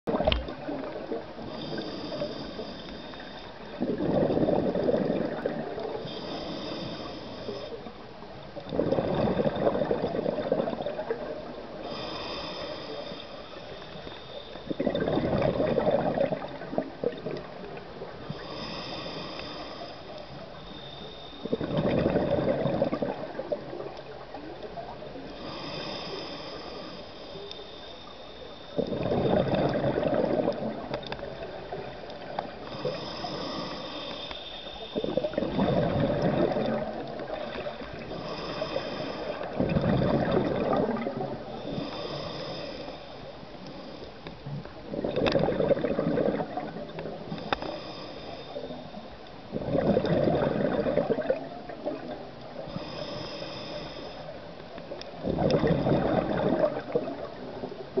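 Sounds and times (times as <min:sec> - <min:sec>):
regulator hiss on inhale: 0:00.3 - 0:08.0, 0:11.0 - 0:15.0, 0:17.5 - 0:21.9, 0:23.1 - 0:45.9, 0:46.6 - 0:49.5, 0:50.9 - 0:55.7
exhaust bubbles bubbling: 0:03.7 - 0:06.0, 0:08.7 - 0:11.6, 0:14.7 - 0:17.6, 0:21.5 - 0:24.0, 0:28.8 - 0:32.0, 0:35.0 - 0:38.2, 0:39.4 - 0:41.9, 0:44.9 - 0:47.2, 0:49.5 - 0:52.2, 0:55.2 - 0:58.0.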